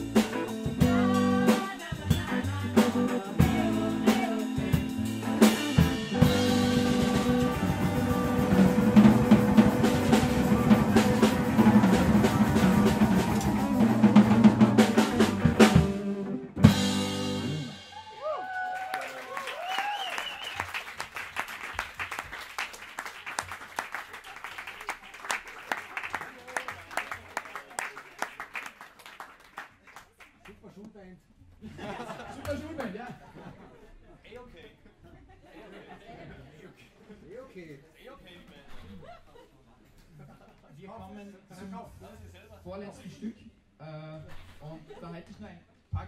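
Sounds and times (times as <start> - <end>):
live band playing pop-jazz: 0.0 - 18.1
audience clapping and cheering: 6.9 - 15.6, 17.9 - 30.6
people whooping: 8.5 - 15.2, 17.8 - 20.9.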